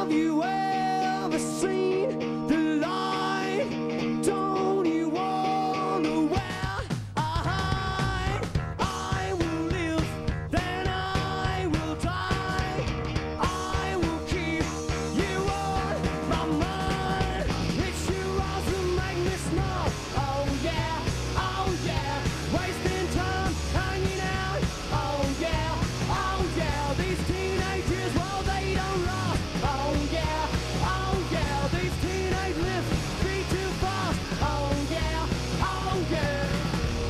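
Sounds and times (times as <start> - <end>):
person singing: 0.0 - 36.8
bass guitar: 0.0 - 37.0
electric guitar: 0.0 - 37.0
drum kit: 6.0 - 37.0.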